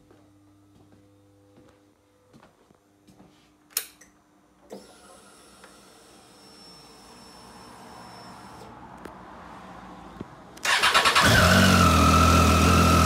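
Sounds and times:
fuel pump electric whine: 10.6 - 13.0.

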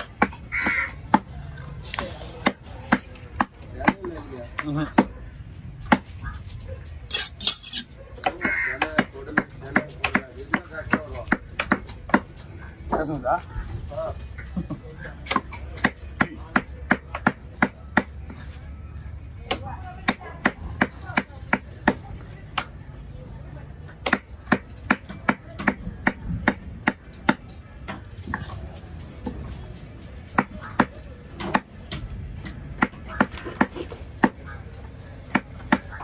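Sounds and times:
cleaver chopping on wooden block: 24.0 - 27.4.

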